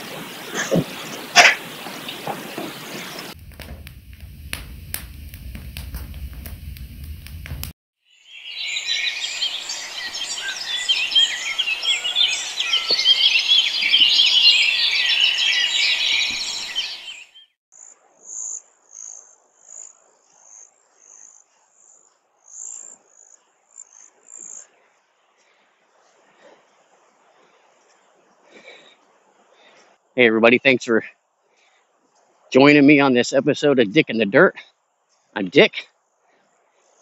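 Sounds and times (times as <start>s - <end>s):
chorus of birds chirping: 0.0s - 3.4s, 8.1s - 24.6s.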